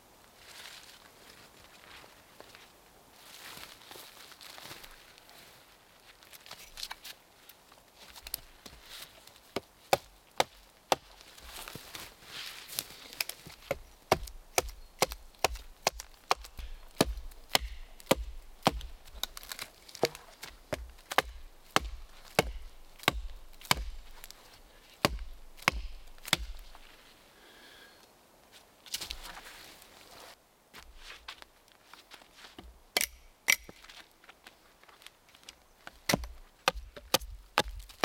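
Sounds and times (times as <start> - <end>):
hatchet chopping wood: 9.6 - 11.1, 13.2 - 27.0, 33.0 - 33.8, 36.0 - 38.0.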